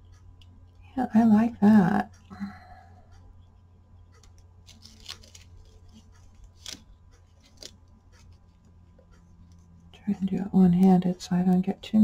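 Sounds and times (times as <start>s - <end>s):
steady low hum: 0.0s - 12.0s
soft handling clicks and rubs: 3.1s - 10.2s.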